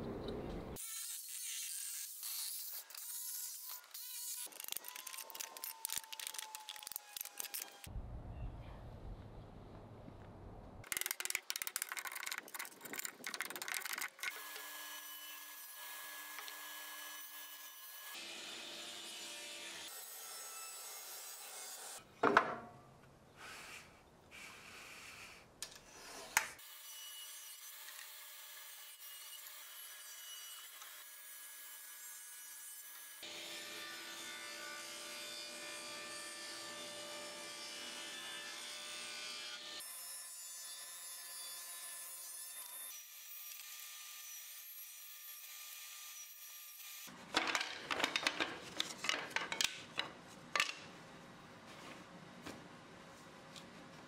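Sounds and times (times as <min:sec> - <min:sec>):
table saw cutting wood: 0:00.8 - 0:07.9, 0:14.3 - 0:22.0, 0:26.0 - 0:47.1
wooden strips clattering together: 0:47.3 - 0:50.9.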